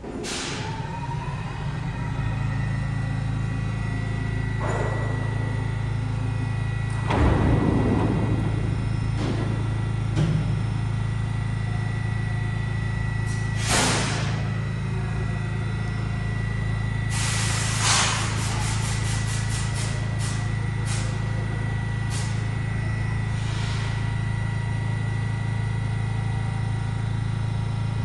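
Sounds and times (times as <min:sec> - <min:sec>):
train low hum: 0:00.0 - 0:28.0
air hissing: 0:13.2 - 0:14.6, 0:17.0 - 0:21.4, 0:22.0 - 0:22.6, 0:23.2 - 0:24.2.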